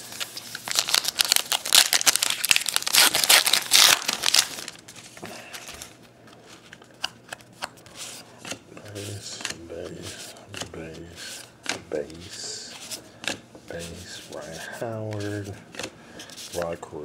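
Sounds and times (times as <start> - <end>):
cards being handled: 0.0 - 16.8
wrapper tearing and crinkling: 0.2 - 4.8.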